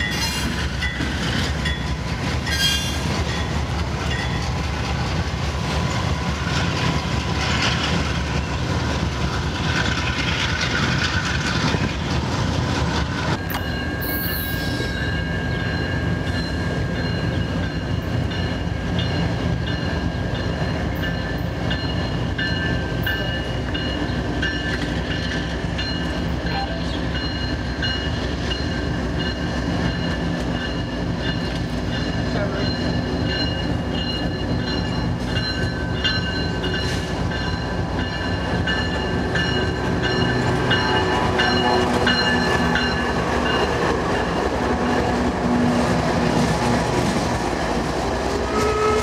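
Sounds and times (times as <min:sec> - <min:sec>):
diesel trains rumbling: 0:00.0 - 0:49.0.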